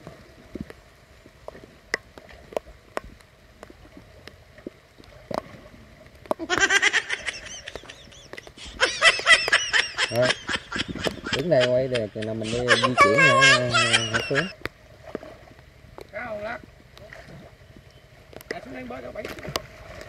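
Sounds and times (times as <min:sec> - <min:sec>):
faint ticks: 0:07.7 - 0:08.6
high wavering human voice: 0:11.6 - 0:14.5.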